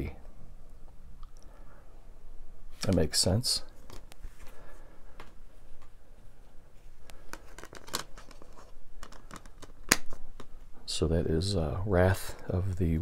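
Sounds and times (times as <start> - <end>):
hands rustling on plastic case: 7.0 - 10.6.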